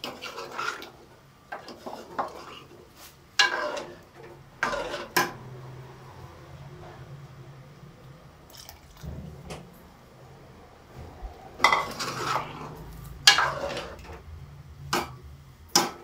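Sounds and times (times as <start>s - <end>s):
metal ladle scraping a pot: 0.0s - 6.1s, 11.2s - 16.0s.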